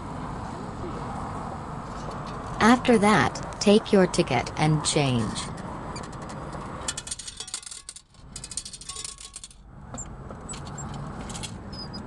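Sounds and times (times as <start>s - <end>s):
coins clinking in metal tray: 7.0s - 9.6s.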